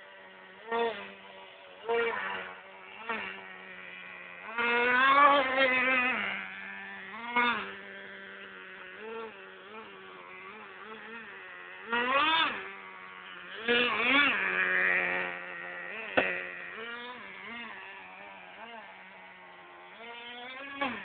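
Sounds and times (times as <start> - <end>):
toy truck motor buzzing and revving: 0.0 - 21.0.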